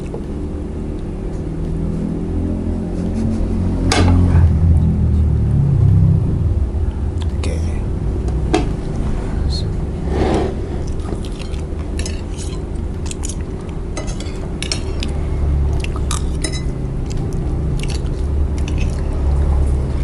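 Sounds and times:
steady low hum: 0.0s - 20.0s
chewing: 10.8s - 19.7s
cutlery clinking on plates: 14.0s - 15.1s, 16.4s - 16.8s.

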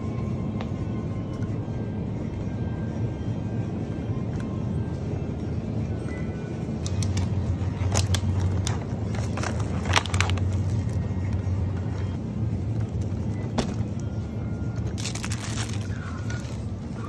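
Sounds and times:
steady low hum: 0.0s - 17.0s
groceries into plastic basket: 7.9s - 11.0s, 14.9s - 17.0s
packaging rustling: 7.9s - 11.0s, 14.9s - 16.8s.

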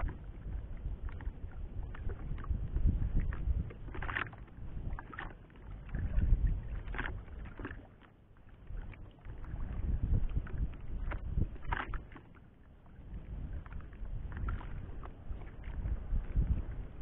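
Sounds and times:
wind buffeting microphone: 0.0s - 7.6s, 8.7s - 12.0s, 13.0s - 17.0s
water slapping against boat hull: 0.0s - 12.5s, 13.1s - 17.0s.

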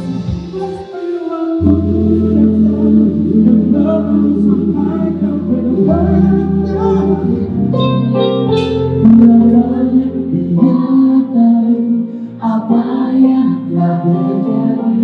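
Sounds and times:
bass line: 0.0s - 0.9s, 1.5s - 15.0s
live pop band playing: 0.0s - 15.0s
men singing together: 0.4s - 7.7s.

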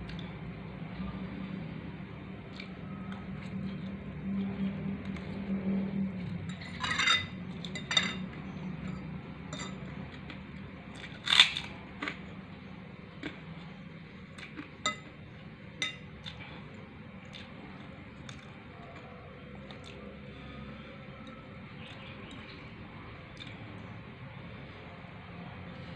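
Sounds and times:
metal utensil clinking kitchenware: 6.5s - 8.2s.

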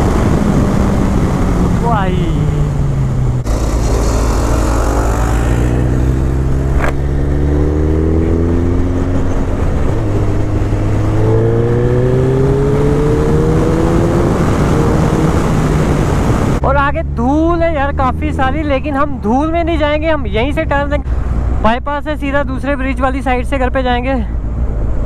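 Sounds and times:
motorcycle engine accelerating: 0.0s - 19.7s.

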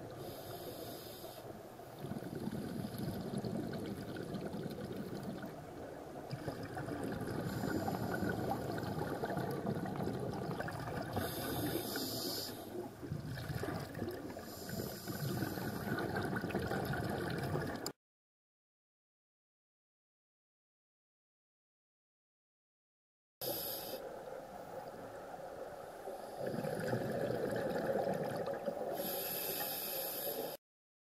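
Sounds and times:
underwater regulator breathing: 0.1s - 3.4s, 7.3s - 9.4s, 11.0s - 12.8s, 13.5s - 16.6s, 23.4s - 24.1s, 28.9s - 30.6s
exhaled bubbles: 1.9s - 17.9s, 26.2s - 29.6s.

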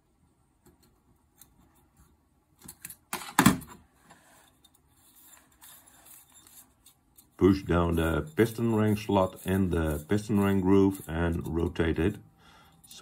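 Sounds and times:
faint handling rubs: 4.0s - 13.0s.

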